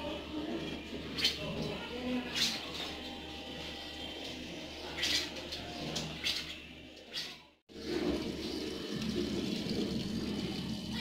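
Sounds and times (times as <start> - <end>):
washing machine water rushing: 7.7 - 11.0.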